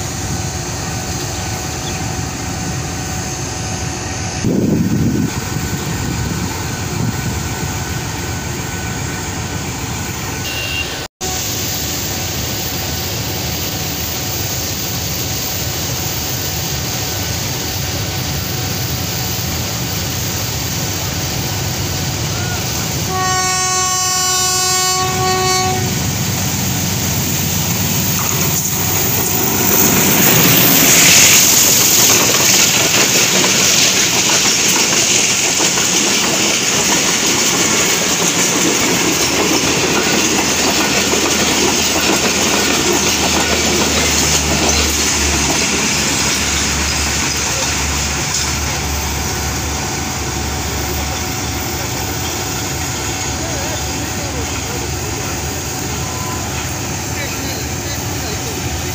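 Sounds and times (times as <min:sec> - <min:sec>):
diesel locomotive passing: 0:00.0 - 0:58.9
train horn blast: 0:10.4 - 0:11.4, 0:22.3 - 0:26.2
wheels clacking over rail joints: 0:27.1 - 0:49.1.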